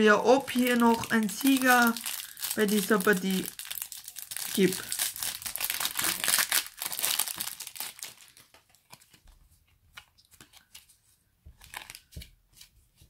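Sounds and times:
foil wrapper crinkling: 0.3 - 9.2, 11.6 - 12.1.

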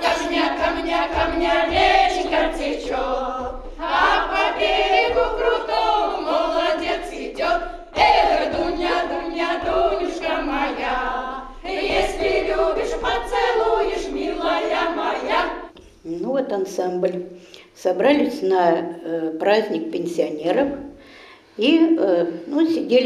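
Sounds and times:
choir of women singing: 0.0 - 15.8.

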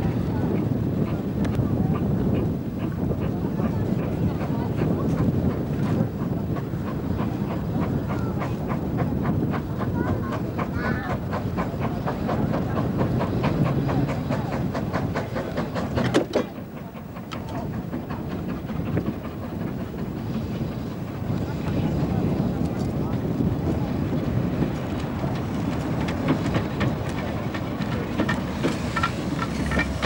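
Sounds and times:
steam train running past: 0.0 - 30.0
wind rumble on microphone: 0.0 - 30.0
wheels clicking beat: 24.6 - 30.0.

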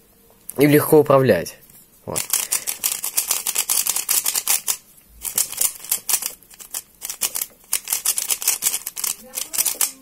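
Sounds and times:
puzzle cube plastic clicks: 2.2 - 10.0.

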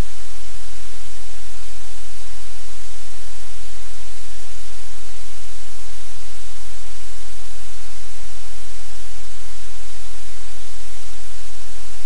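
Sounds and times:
static hiss: 0.0 - 12.0.

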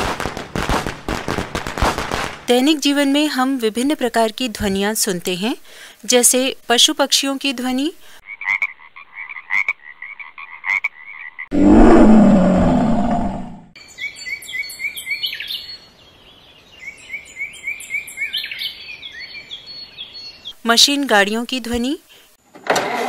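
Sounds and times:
repeated croaking calls: 8.2 - 11.6
loud low animal call: 11.5 - 13.8
birds chirping and singing: 13.8 - 20.6.

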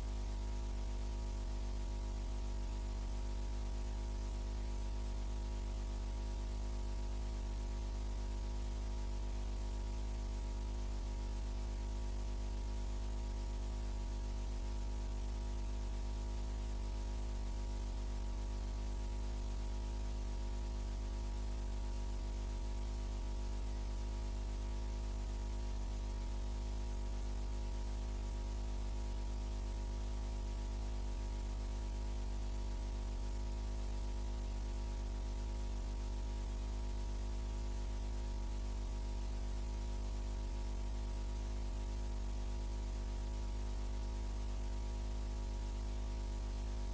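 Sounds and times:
electrical mains hum: 0.0 - 46.9
static hiss: 0.0 - 46.9.

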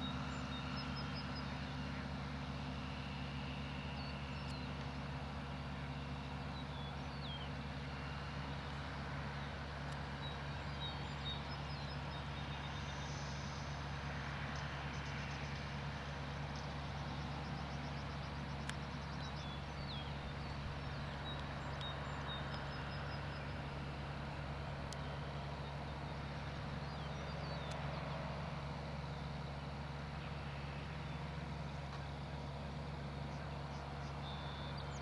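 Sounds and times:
low engine drone: 0.0 - 35.0
birds chirping: 16.4 - 35.0.

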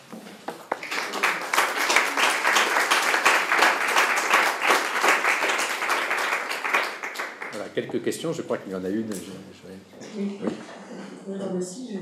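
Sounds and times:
audience applause: 0.7 - 7.8.

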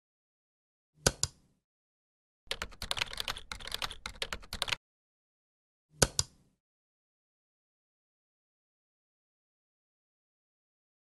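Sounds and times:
keyboard typing: 2.5 - 4.8
computer mouse clicks: 6.0 - 6.4.

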